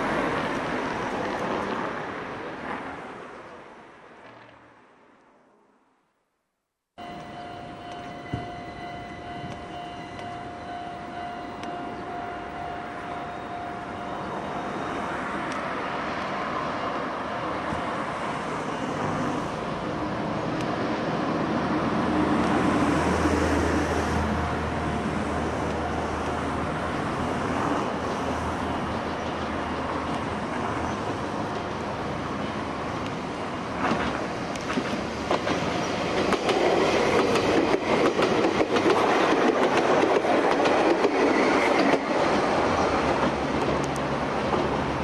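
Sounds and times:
train approaching on track: 0.0 - 4.8, 7.0 - 45.0
level crossing warning signal: 7.0 - 17.5, 28.2 - 29.2.

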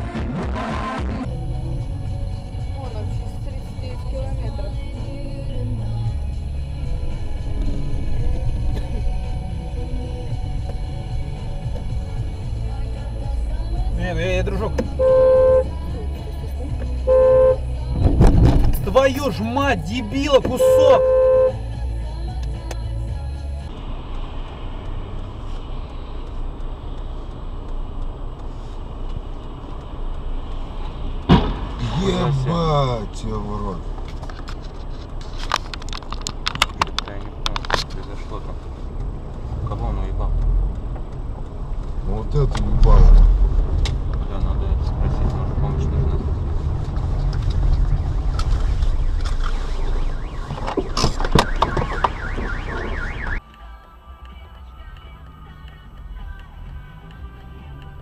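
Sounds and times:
car engine idling: 1.3 - 34.7
car alarm wailing: 15.0 - 15.7, 17.1 - 17.6, 20.6 - 21.6, 48.6 - 53.4.

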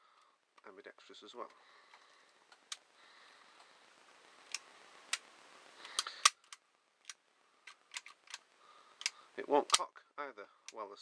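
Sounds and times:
pistol mechanism clicking: 5.9 - 8.4.

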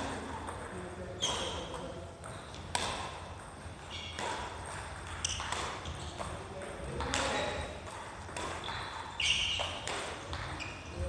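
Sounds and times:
racket hitting shuttlecock: 0.0 - 11.0
shoe squeaks on wooden floor: 1.1 - 2.6, 3.8 - 4.3, 5.1 - 6.2, 8.6 - 11.0.

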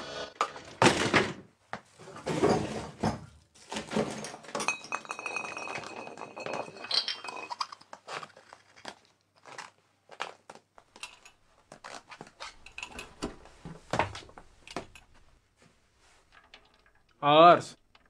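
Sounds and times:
glass clinking and knocking: 2.3 - 7.8, 12.6 - 13.4.

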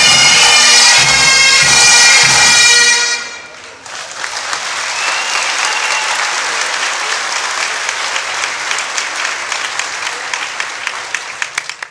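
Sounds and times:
crowd applauding: 3.4 - 11.9.

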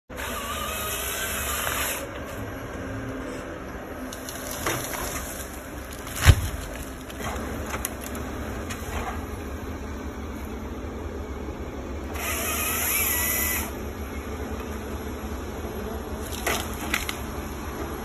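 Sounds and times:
diesel engine running: 0.1 - 18.0
wood cracks and knocks: 4.1 - 9.2, 16.3 - 17.3
tree hitting the ground: 4.2 - 8.1.

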